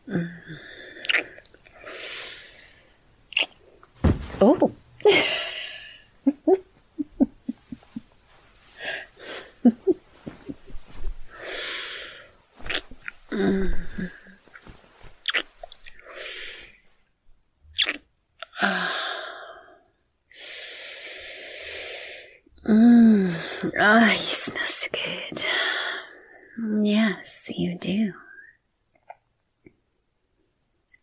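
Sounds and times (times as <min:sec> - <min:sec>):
slow breaths: 0:00.0 - 0:03.1, 0:07.8 - 0:15.1, 0:15.8 - 0:16.9, 0:18.6 - 0:22.5
lip smacks and mouth clicks: 0:01.0 - 0:01.8, 0:03.3 - 0:04.0, 0:15.2 - 0:16.0, 0:17.8 - 0:18.5.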